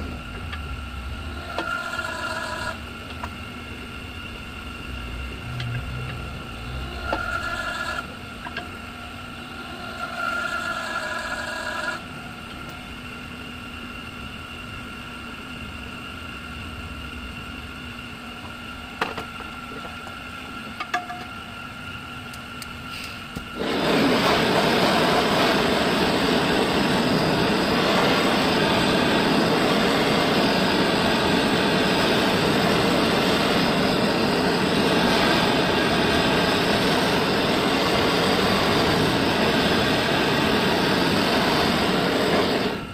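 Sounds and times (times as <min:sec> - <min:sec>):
gas torch flame hissing: 0:00.0 - 0:42.9
low steady hum: 0:00.0 - 0:42.9.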